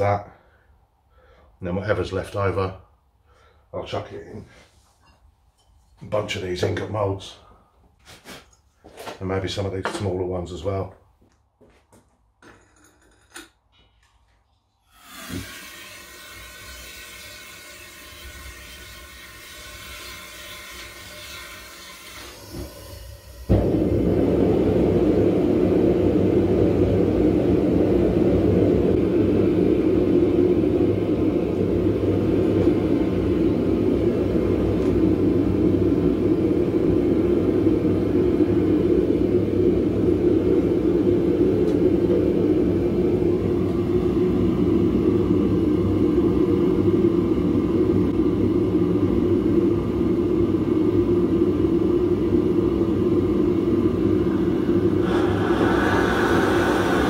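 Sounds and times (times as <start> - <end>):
propane burner rushing: 14.8 - 57.0.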